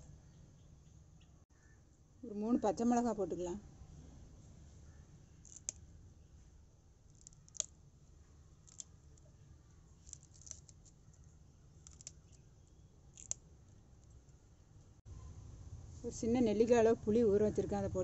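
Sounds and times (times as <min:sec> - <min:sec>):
low steady hum: 0:00.0 - 0:18.0
chillies snapping by hand: 0:05.4 - 0:05.8, 0:07.1 - 0:07.8, 0:08.6 - 0:09.0, 0:10.0 - 0:11.0, 0:11.8 - 0:12.4, 0:13.1 - 0:13.4.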